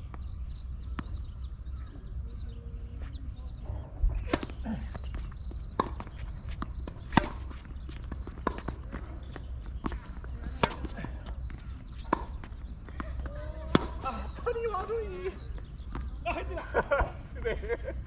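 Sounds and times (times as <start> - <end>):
tennis racket hitting balls: 4.2 - 14.2
tennis balls bouncing on court: 4.2 - 17.6.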